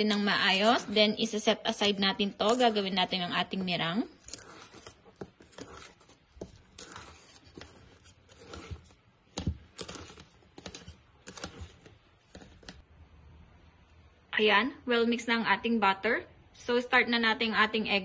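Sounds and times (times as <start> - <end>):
spatula scraping mixing bowl: 0.0 - 12.8.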